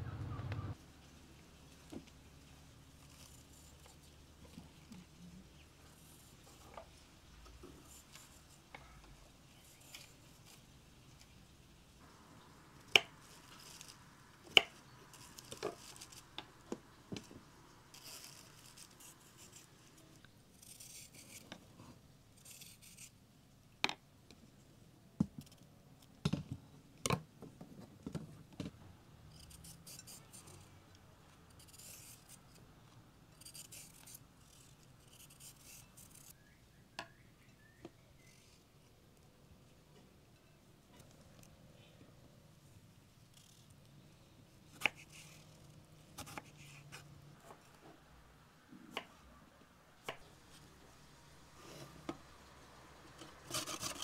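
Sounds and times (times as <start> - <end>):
knife scraping vegetable skins: 17.9 - 21.5, 22.4 - 23.2, 29.3 - 30.7, 31.5 - 32.5, 33.4 - 36.4, 44.7 - 47.5, 53.2 - 54.0.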